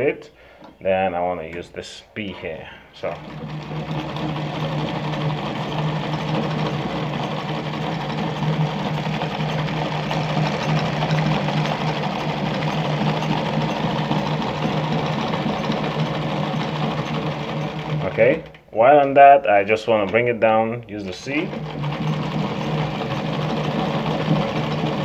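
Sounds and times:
low motor hum: 0:03.0 - 0:18.6
sewing machine stitching: 0:03.0 - 0:19.3, 0:21.1 - 0:25.0.

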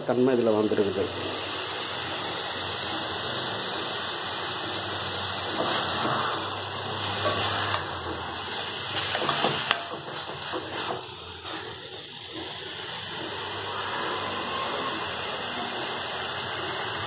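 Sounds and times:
food sizzling in oil: 0:00.4 - 0:17.0.

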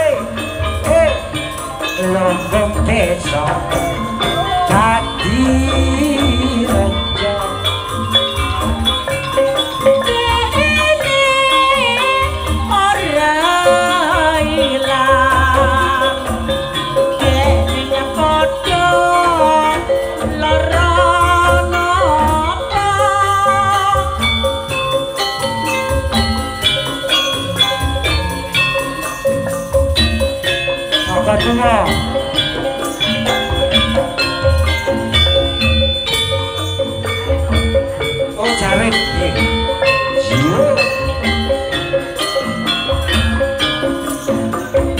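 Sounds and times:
deep drum beats: 0:00.0 - 0:09.1
woman singing ornamented melody: 0:09.8 - 0:24.6.

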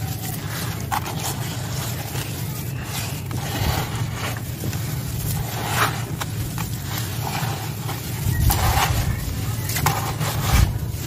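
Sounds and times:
hands crunching gritty sand: 0:00.0 - 0:11.0
steady low rumble: 0:00.0 - 0:11.0.

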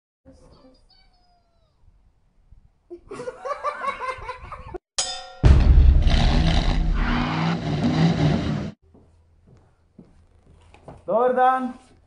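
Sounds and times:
intro music: 0:05.4 - 0:08.7
cartoon car engine revving: 0:06.0 - 0:08.8.

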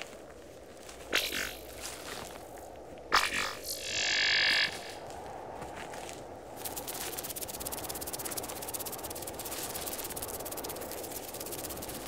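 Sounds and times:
electrical static crackle: 0:01.1 - 0:01.9, 0:03.2 - 0:05.0, 0:06.6 - 0:12.0
low rushing noise: 0:06.5 - 0:12.0.

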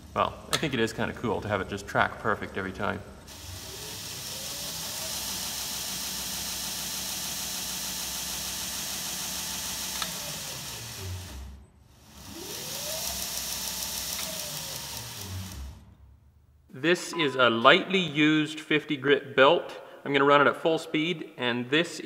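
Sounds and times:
belt grinder motor whine: 0:03.2 - 0:16.0.

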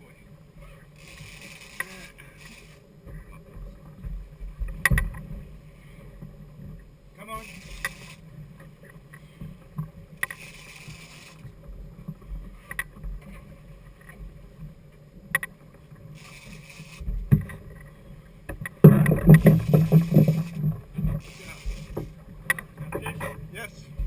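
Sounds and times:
outboard motors humming: 0:00.0 - 0:24.0
fishing reel winding: 0:01.0 - 0:02.8, 0:07.4 - 0:08.3, 0:10.2 - 0:11.5, 0:16.2 - 0:17.1, 0:21.2 - 0:22.1
short hissing rushes: 0:16.2 - 0:17.1, 0:21.2 - 0:22.0.

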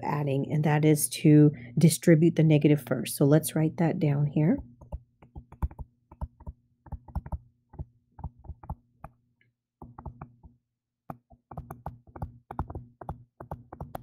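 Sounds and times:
stylus tapping on touchscreen: 0:04.6 - 0:09.2, 0:09.8 - 0:14.0.

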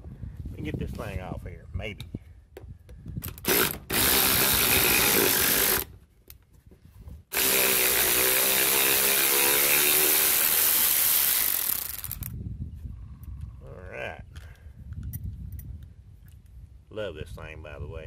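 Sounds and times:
electric ratchet motor running: 0:03.4 - 0:05.9, 0:07.3 - 0:12.3.

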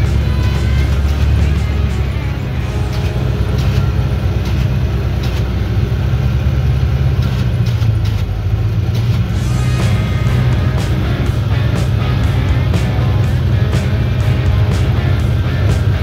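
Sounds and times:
utility vehicle engine running: 0:00.0 - 0:16.0.

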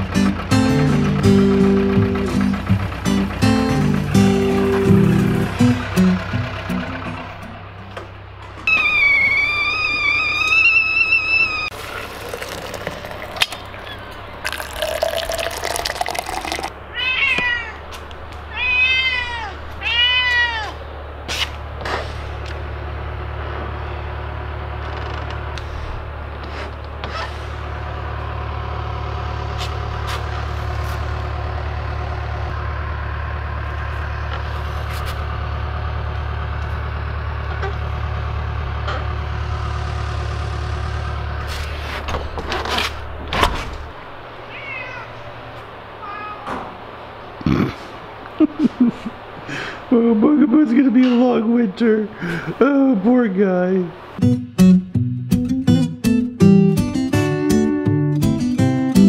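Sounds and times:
cat meowing: 0:08.7 - 0:11.7, 0:16.9 - 0:17.8, 0:18.5 - 0:20.8, 0:44.4 - 0:45.3, 0:46.0 - 0:46.6.

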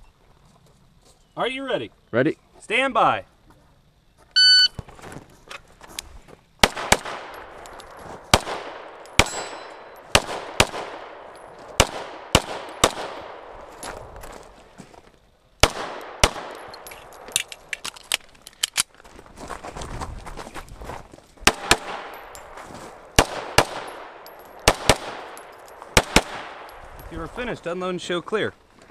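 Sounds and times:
pistol shots: 0:06.6 - 0:13.6, 0:15.6 - 0:17.6, 0:21.5 - 0:26.8.

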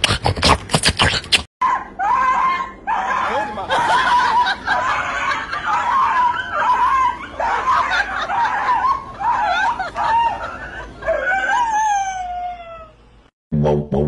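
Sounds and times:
dog howling and yowling: 0:01.6 - 0:13.0.

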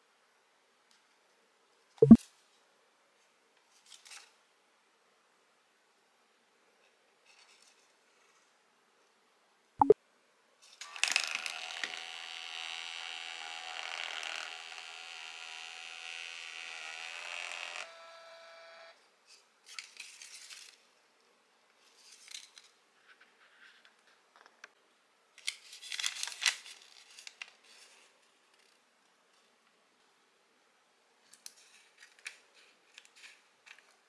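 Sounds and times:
paper rustling and crinkling: 0:19.7 - 0:20.8, 0:25.4 - 0:28.1.

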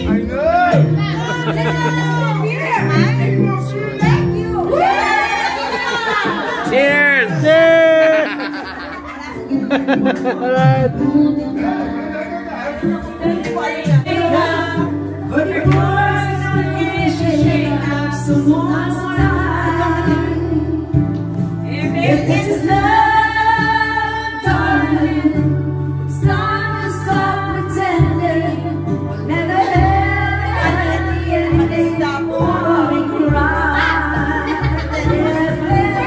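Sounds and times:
backing track with bass line: 0:00.0 - 0:36.0
woman singing karaoke: 0:00.9 - 0:06.7, 0:08.9 - 0:12.1, 0:12.8 - 0:36.0.

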